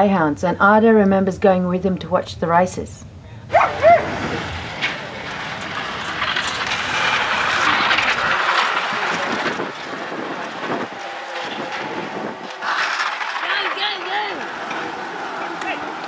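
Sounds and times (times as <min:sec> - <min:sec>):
greyhounds rushing past rattling: 0:03.4 - 0:15.4.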